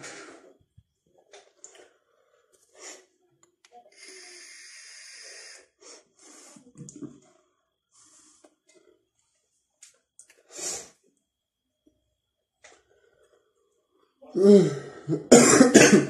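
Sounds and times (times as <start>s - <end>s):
hiss of air drawn through vape: 4.0s - 6.7s.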